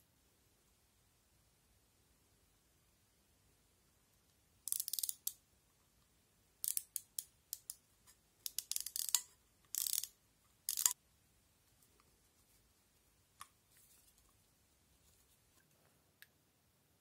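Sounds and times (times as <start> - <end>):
small gears clicking and ratcheting: 4.7 - 5.4, 6.6 - 7.8, 8.4 - 10.1, 10.7 - 11.0.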